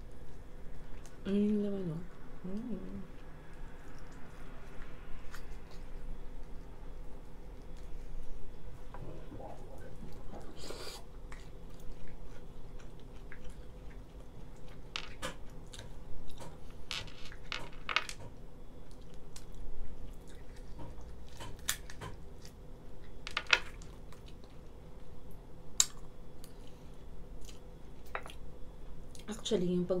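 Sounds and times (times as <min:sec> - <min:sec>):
chewing: 0:09.2 - 0:16.6, 0:18.8 - 0:25.2, 0:25.8 - 0:28.4.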